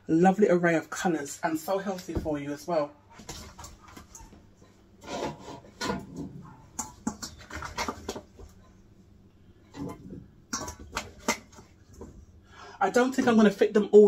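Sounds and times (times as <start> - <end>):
utensil scraping metal bowl: 5.0 - 8.3.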